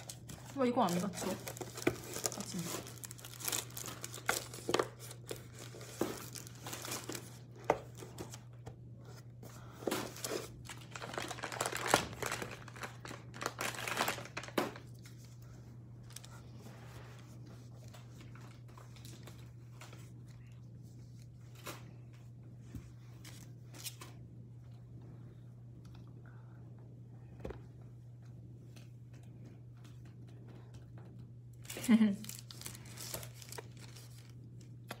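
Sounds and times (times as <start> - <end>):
packaging crinkling: 0.0 - 8.4, 9.8 - 15.1, 31.6 - 35.0
faint low hum: 0.0 - 35.0.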